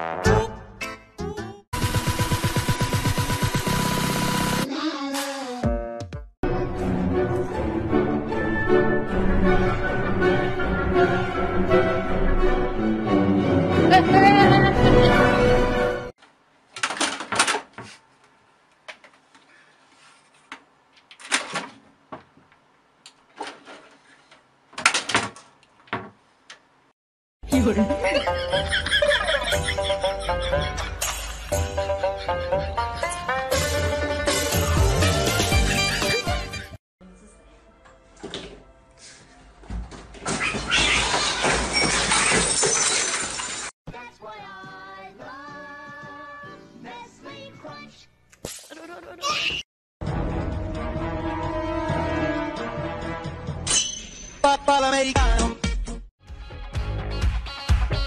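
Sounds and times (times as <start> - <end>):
background music with held notes: 27.4 - 39.1
objects crashing and falling: 40.1 - 43.7.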